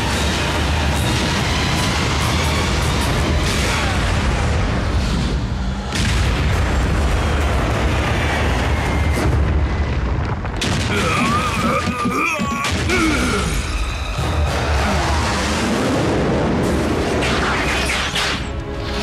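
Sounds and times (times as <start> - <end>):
cartoon explosions booming: 5.9 - 13.6.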